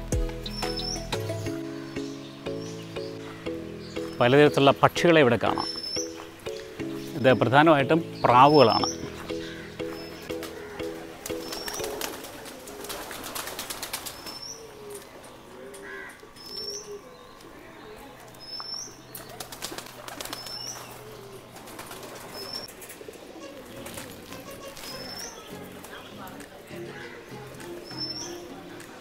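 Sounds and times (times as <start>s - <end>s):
pigeons cooing: 0.0s - 29.0s
small bird's high chirp: 5.5s - 7.2s, 8.2s - 10.3s
wings flapping: 10.3s - 14.4s, 19.2s - 26.6s.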